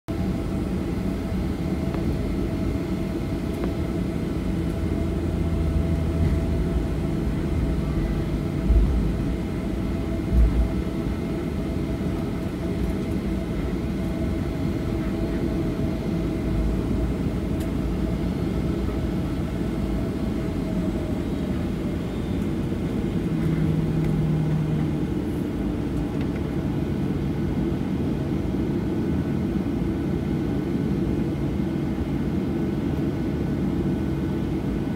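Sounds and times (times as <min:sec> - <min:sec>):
jet engines rumbling: 0:00.1 - 0:34.9.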